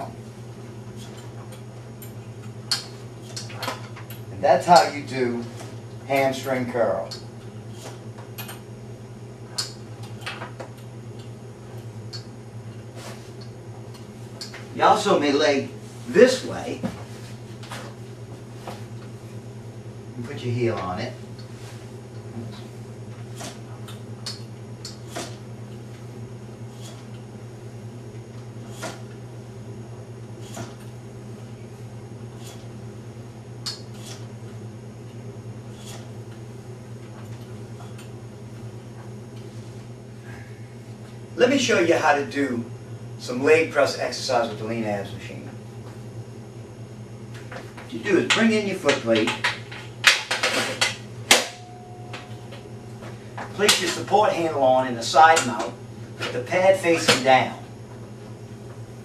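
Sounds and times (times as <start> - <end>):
steady low hum: 0.0 - 59.0
low hum: 49.4 - 59.0.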